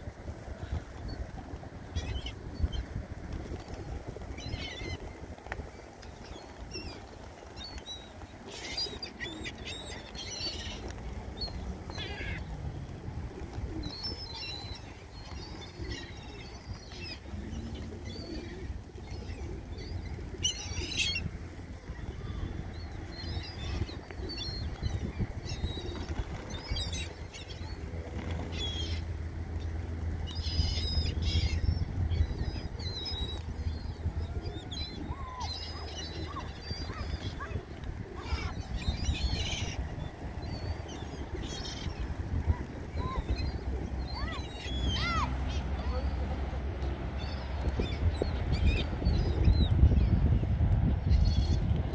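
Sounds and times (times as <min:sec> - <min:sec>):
wings flapping: 0:00.5 - 0:30.8, 0:31.6 - 0:49.5
gull cries: 0:11.9 - 0:12.5, 0:30.4 - 0:46.2.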